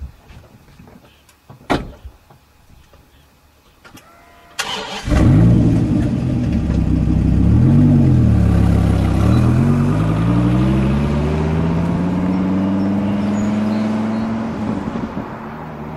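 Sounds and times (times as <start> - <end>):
sports car engine revving: 5.1 - 15.1.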